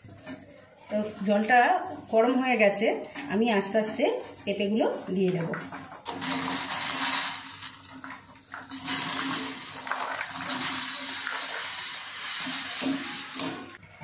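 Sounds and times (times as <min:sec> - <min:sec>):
skimmer stirring and knocking in pot: 0:00.0 - 0:13.8
gas burner hiss: 0:08.7 - 0:13.8.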